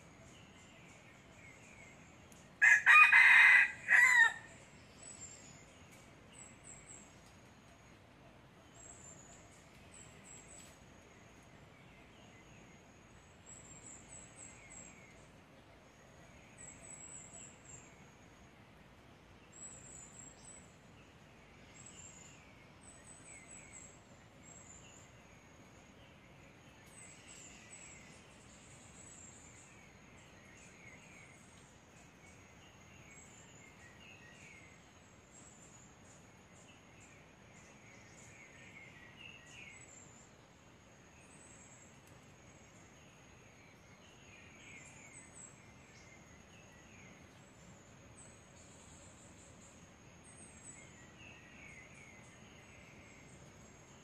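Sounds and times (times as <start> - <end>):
rooster crowing: 2.6 - 4.5.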